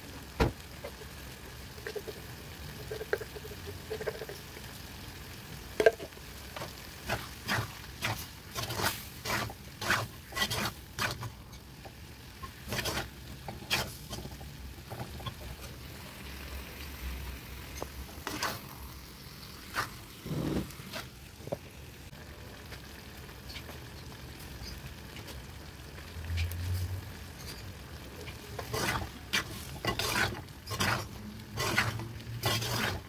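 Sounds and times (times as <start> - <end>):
meat sizzling: 0.0 - 33.0
spatula scraping a clay pot: 7.1 - 11.3, 12.7 - 14.3, 28.6 - 33.0.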